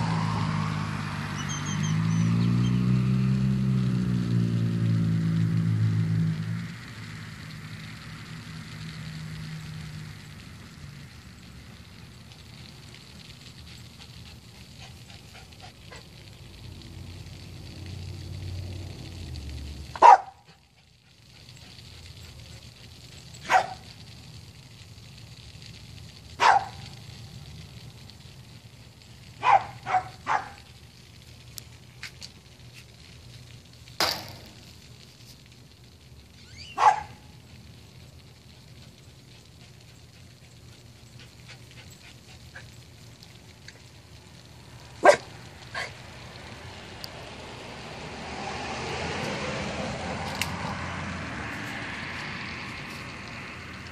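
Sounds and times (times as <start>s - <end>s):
vehicle approaching: 0.0s - 53.9s
dog barking: 20.0s - 20.5s, 23.4s - 23.9s, 26.4s - 26.8s, 29.4s - 30.6s, 36.8s - 37.2s, 45.0s - 45.9s.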